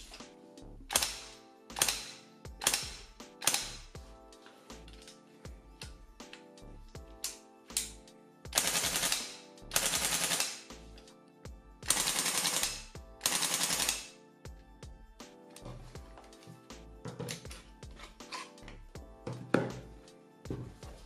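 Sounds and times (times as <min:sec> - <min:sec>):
airsoft rifle full-auto bursts: 0:08.6 - 0:10.7, 0:11.9 - 0:14.1.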